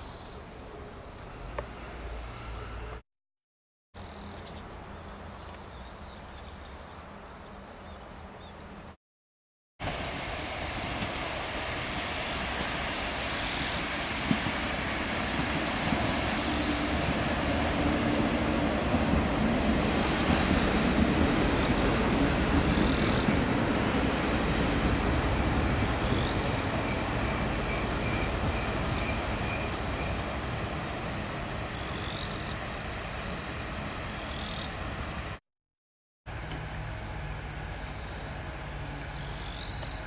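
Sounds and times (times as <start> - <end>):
train wheels rumbling on rails: 9.8 - 35.4.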